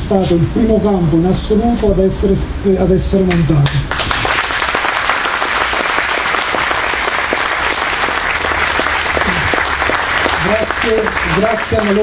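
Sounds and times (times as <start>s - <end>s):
audience applause: 3.9s - 12.0s.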